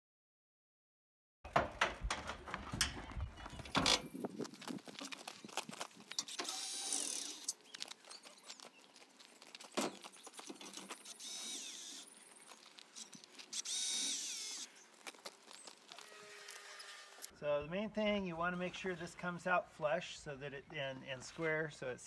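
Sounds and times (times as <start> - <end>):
knocks and clatter of parts: 1.5 - 8.2, 9.4 - 13.9
cordless drill whining: 6.2 - 7.5, 11.0 - 12.1, 13.0 - 14.7.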